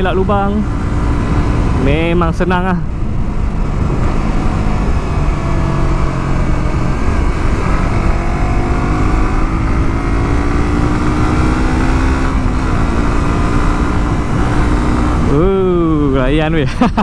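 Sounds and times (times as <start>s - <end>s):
wind rumbling on microphone: 0.0s - 16.3s.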